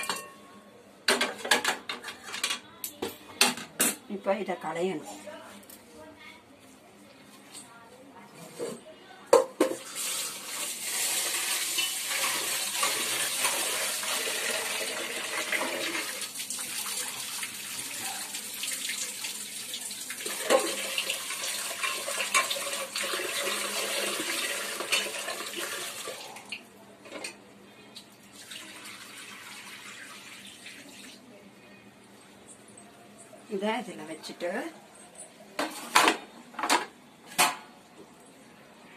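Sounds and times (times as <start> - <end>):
pot clinking: 0.0 - 0.6, 11.6 - 13.6
rice rinsed by hand: 9.7 - 26.5.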